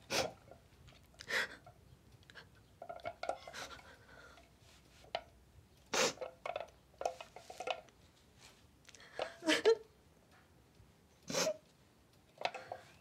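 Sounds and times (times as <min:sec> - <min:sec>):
sniffles: 0:11.3 - 0:11.6.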